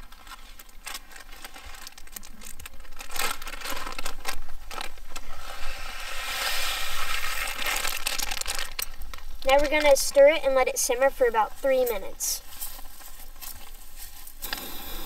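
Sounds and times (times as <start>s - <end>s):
plastic pouch crinkling: 0.0s - 5.4s, 6.9s - 10.2s.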